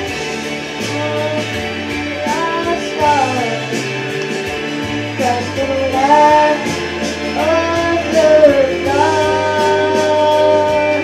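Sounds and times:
instrumental accompaniment: 0.0s - 11.0s
boy singing into a microphone: 0.8s - 3.7s, 5.2s - 11.0s.

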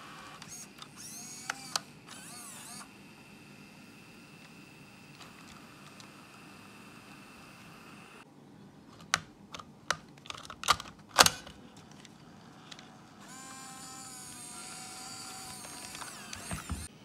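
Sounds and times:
tape motor whirring: 0.0s - 8.2s, 12.2s - 16.9s
plastic clicks and snaps: 9.0s - 12.9s, 15.2s - 16.8s.

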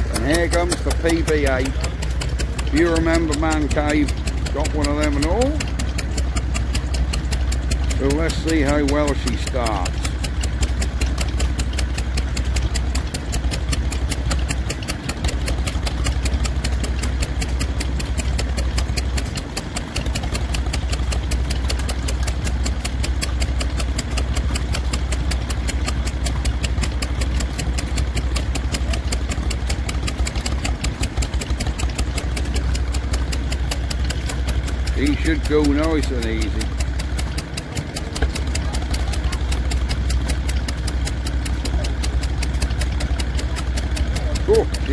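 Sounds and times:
stationary engine running: 0.0s - 44.9s.

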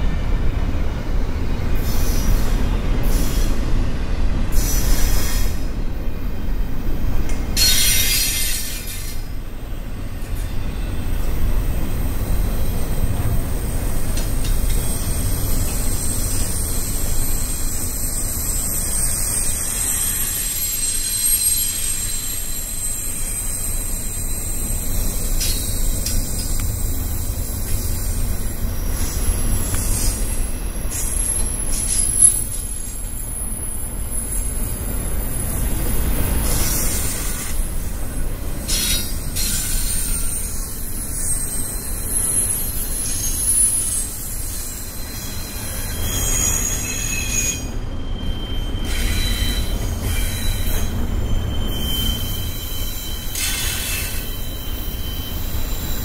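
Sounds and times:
train wheels rumbling on rail: 0.0s - 56.0s
short high screeches: 7.6s - 9.2s, 16.0s - 27.2s, 38.7s - 56.0s
thin high wheel squeal: 7.6s - 9.2s, 14.7s - 37.6s, 38.6s - 56.0s.

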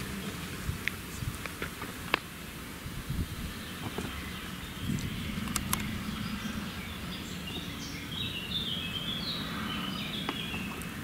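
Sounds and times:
distant harvester drone: 2.6s - 10.0s.

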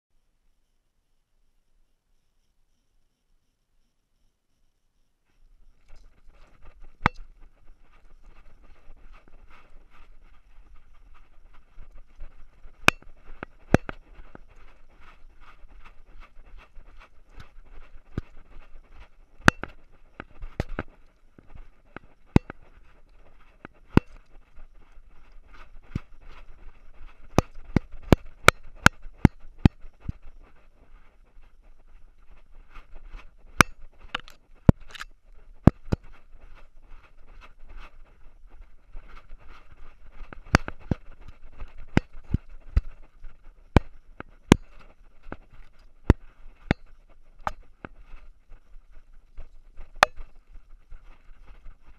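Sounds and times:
camera rattling on collar: 5.5s - 51.9s.

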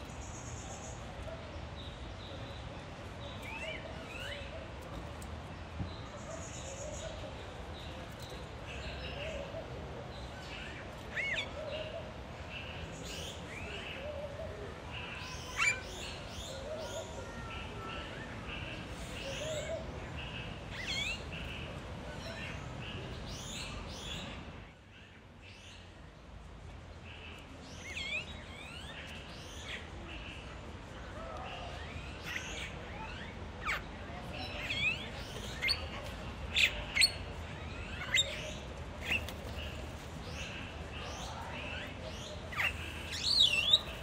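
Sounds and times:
steady background hiss: 0.0s - 44.0s
birds chirping and singing: 15.0s - 17.4s, 31.6s - 44.0s.

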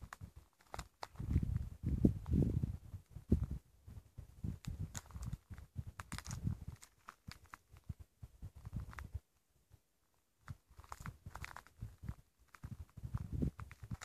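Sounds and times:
sharp crackles: 0.0s - 2.4s, 4.4s - 9.2s, 10.4s - 14.0s.

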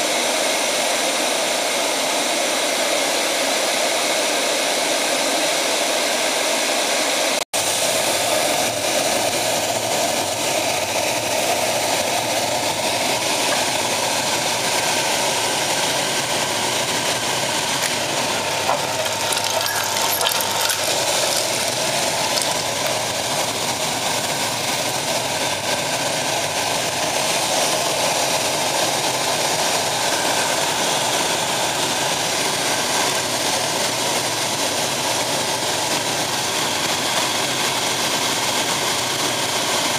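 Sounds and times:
pellet burner fan and flame: 0.0s - 39.9s.

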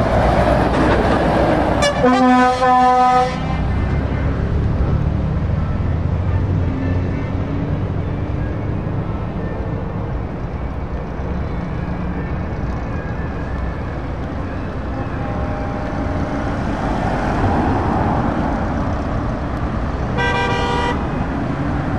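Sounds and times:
road traffic passing: 0.0s - 21.9s
horn blast: 1.8s - 3.6s, 20.1s - 21.1s.

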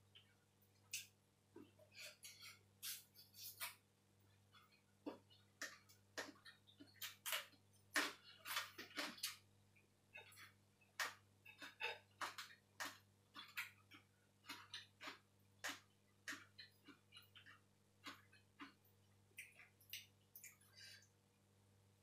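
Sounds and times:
wet eating clicks and smacks: 4.5s - 9.5s, 10.1s - 20.8s.

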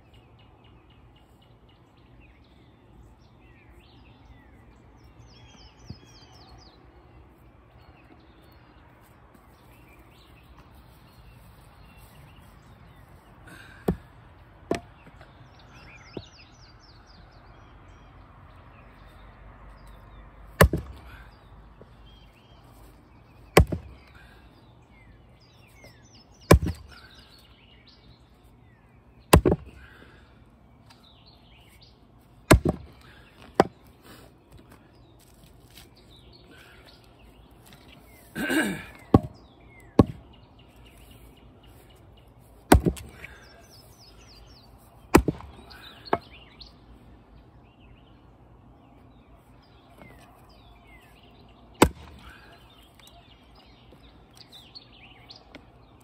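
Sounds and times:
birds chirping: 0.0s - 56.0s
axe splitting wood: 14.6s - 15.0s, 20.6s - 21.2s, 23.5s - 24.2s, 26.5s - 27.0s, 29.3s - 29.9s, 32.5s - 33.8s, 39.0s - 39.4s, 40.0s - 40.3s, 42.7s - 43.4s, 45.1s - 46.3s, 51.8s - 52.4s.

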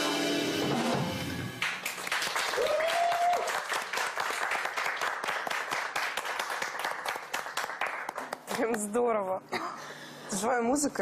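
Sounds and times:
audience applauding: 1.6s - 8.5s
person whooping: 2.6s - 3.6s.

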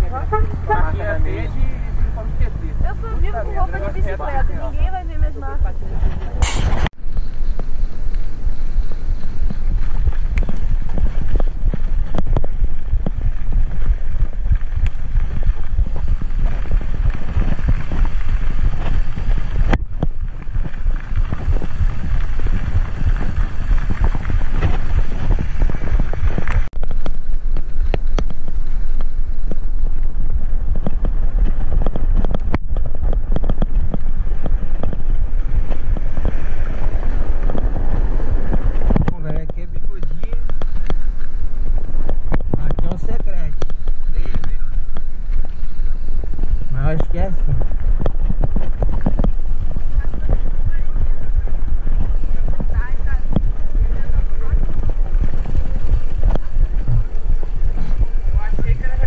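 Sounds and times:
bike rumbling on dirt road: 0.0s - 59.0s
wind buffeting microphone: 0.0s - 59.0s
bike rattles and knocks: 6.0s - 59.0s.

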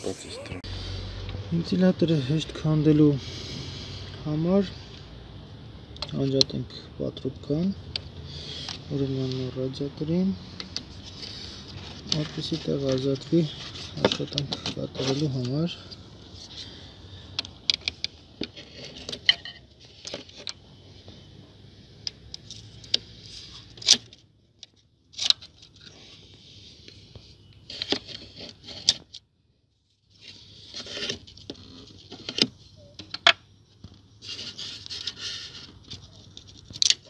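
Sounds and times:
light scraping and rustling: 8.3s - 29.2s, 29.8s - 33.1s, 33.8s - 37.0s.

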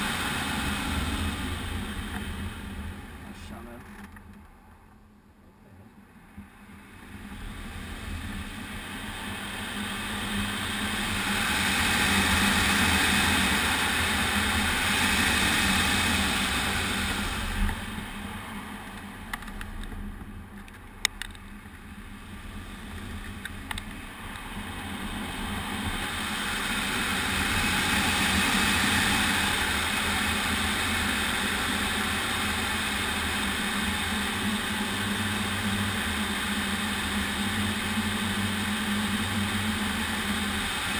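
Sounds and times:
air rushing over glider canopy: 0.0s - 3.6s, 6.2s - 40.9s
steady low hum: 0.0s - 40.9s.

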